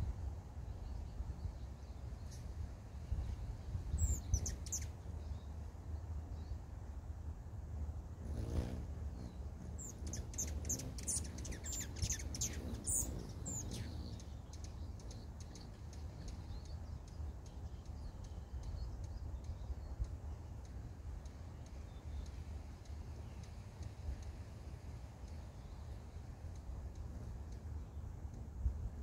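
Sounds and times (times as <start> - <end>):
low background rumble: 0.0 - 29.0
hummingbird wing whir: 3.2 - 5.6, 7.6 - 17.6.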